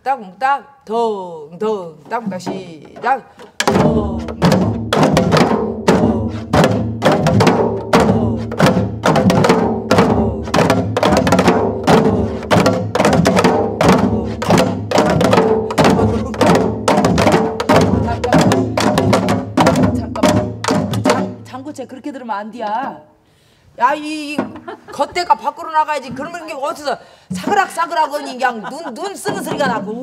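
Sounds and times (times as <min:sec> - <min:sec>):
hourglass drums playing rhythm: 0:02.1 - 0:21.6.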